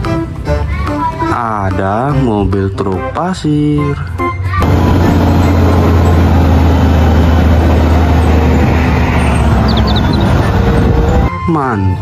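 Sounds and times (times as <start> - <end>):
diesel truck engine droning: 4.6 - 11.3.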